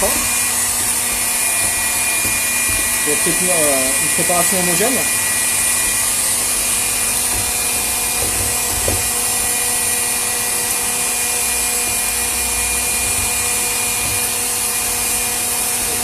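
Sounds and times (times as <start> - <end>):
electric stand mixer running: 0.0 - 16.0.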